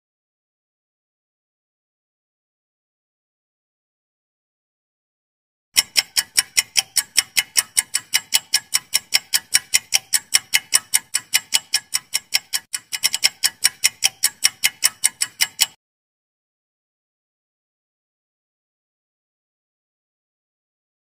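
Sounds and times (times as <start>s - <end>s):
fast clock ticking: 5.8s - 15.8s.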